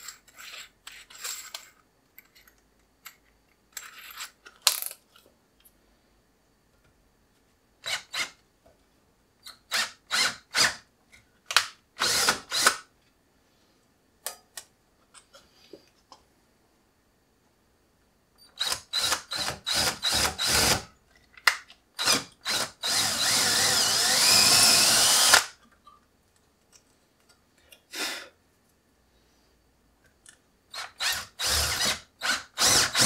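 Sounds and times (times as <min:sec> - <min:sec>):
cordless drill drilling metal: 0:09.7 - 0:10.8, 0:12.0 - 0:12.8, 0:18.6 - 0:20.9, 0:22.0 - 0:25.5, 0:30.7 - 0:33.0
drill chuck ratcheting: 0:22.0 - 0:25.5, 0:30.7 - 0:33.0.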